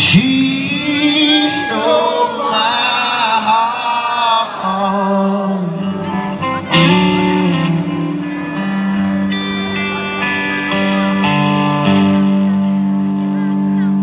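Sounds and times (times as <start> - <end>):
person singing: 0.0 - 8.8
electric guitar chords: 0.0 - 14.0.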